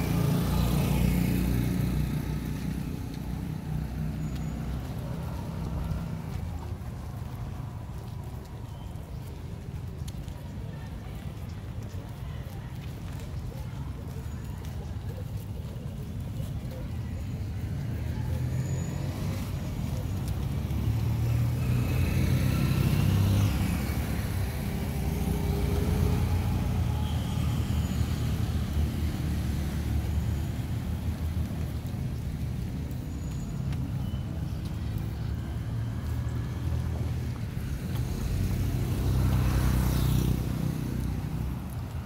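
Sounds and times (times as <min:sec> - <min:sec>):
low rumble of traffic: 0:00.0 - 0:42.0
vehicle passing close: 0:18.2 - 0:31.9.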